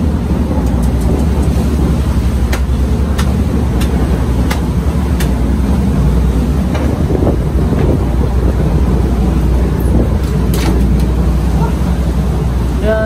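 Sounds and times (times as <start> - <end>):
engine running: 0.0 - 13.0
light clicks: 0.6 - 1.6.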